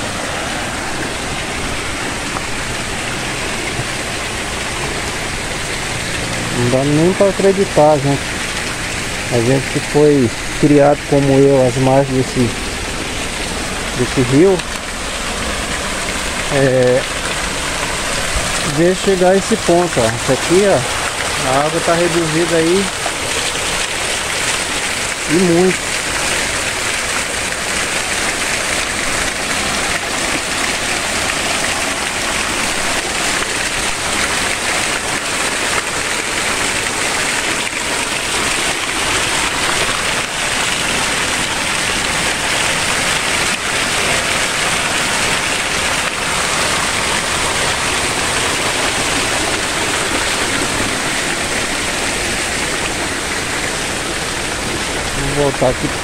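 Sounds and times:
water splashing onto rocks: 0:00.0 - 0:56.0.

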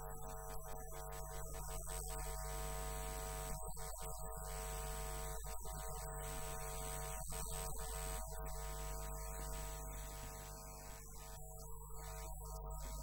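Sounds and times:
electrical mains hum: 0:04.2 - 0:13.0.

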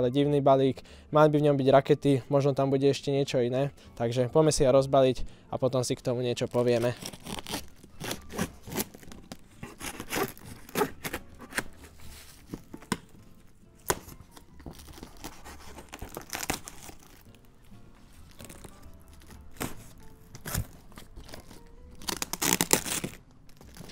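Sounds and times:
plastic ripping and crinkling: 0:06.4 - 0:13.1, 0:13.8 - 0:23.9
knife slitting plastic wrap: 0:06.5 - 0:12.9, 0:13.8 - 0:17.3, 0:18.3 - 0:23.9.

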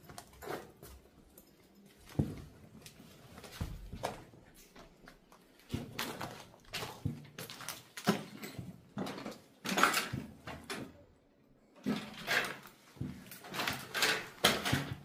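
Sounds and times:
footsteps on debris: 0:02.1 - 0:09.7.

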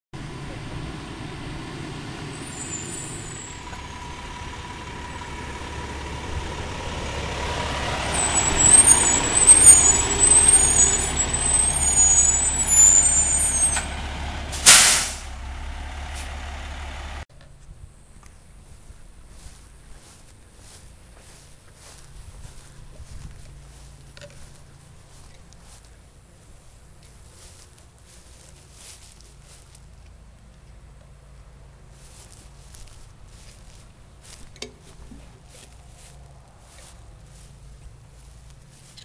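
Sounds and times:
truck engine running: 0:00.2 - 0:17.3, 0:19.3 - 0:39.0
brakes squealing: 0:00.2 - 0:17.6, 0:19.3 - 0:39.0
air brakes hiss: 0:14.5 - 0:15.4.

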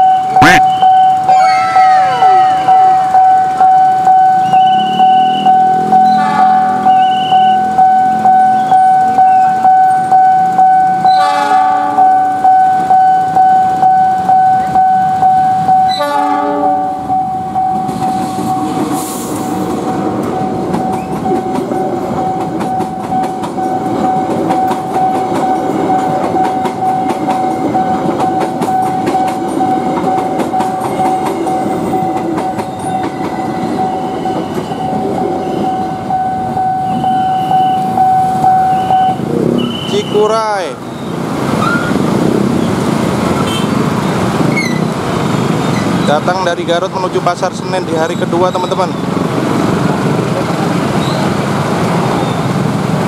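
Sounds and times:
level crossing bell ringing: 0:00.0 - 0:16.0, 0:20.4 - 0:39.3
train coaches rumbling past: 0:00.0 - 0:53.0
locomotive horn blasts: 0:00.3 - 0:03.5, 0:04.7 - 0:07.7, 0:11.1 - 0:12.2, 0:15.9 - 0:17.1, 0:43.4 - 0:43.8
wheels clattering on rail joints: 0:17.0 - 0:53.0.

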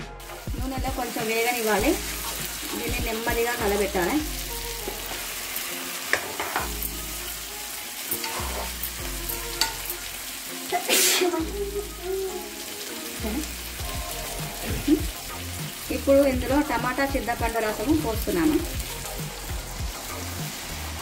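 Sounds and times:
fish sizzling in hot oil: 0:00.0 - 0:21.0
spoon scraping a pan: 0:04.8 - 0:06.8, 0:08.1 - 0:10.0.

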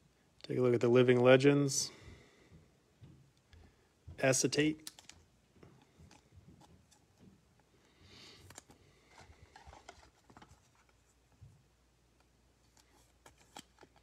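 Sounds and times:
trading cards rustling and clicking: 0:04.6 - 0:11.4, 0:12.1 - 0:14.0.

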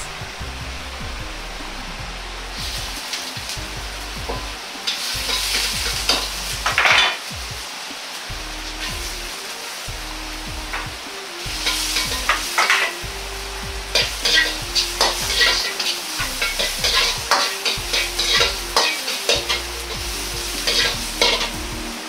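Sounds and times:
oil sizzling: 0:00.0 - 0:22.0
metal ladle scraping wok: 0:04.3 - 0:07.2, 0:11.5 - 0:13.1, 0:13.9 - 0:22.0.

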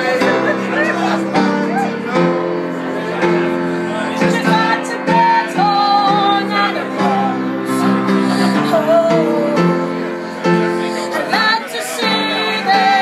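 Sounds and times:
piano chords: 0:00.0 - 0:13.0
woman singing: 0:04.1 - 0:13.0.

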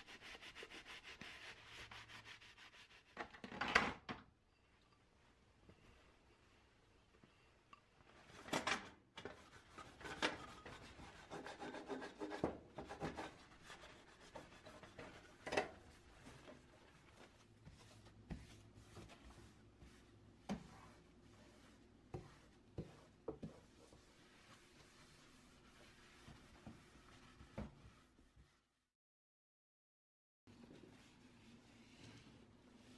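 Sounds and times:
paper towel wiping countertop: 0:00.0 - 0:03.2, 0:09.3 - 0:28.8, 0:30.5 - 0:32.9.

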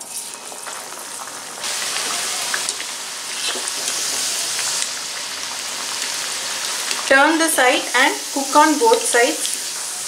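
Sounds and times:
fritters deep-frying in oil: 0:00.0 - 0:10.0.

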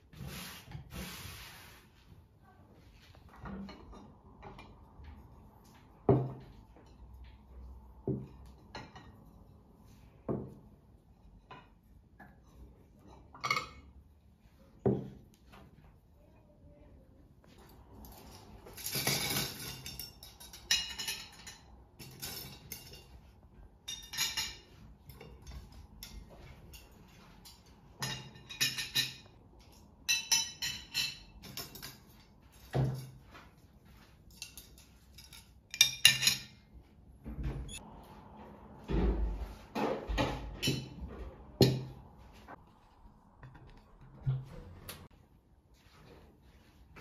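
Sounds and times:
cutlery clinking on plates: 0:18.0 - 0:33.6, 0:34.3 - 0:36.7, 0:39.8 - 0:42.0.

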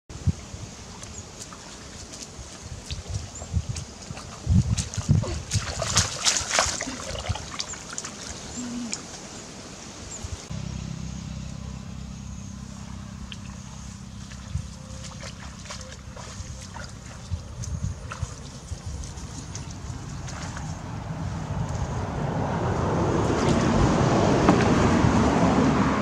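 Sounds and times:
muddy water splashing: 0:00.4 - 0:26.0
steady low rumble: 0:10.2 - 0:26.0.

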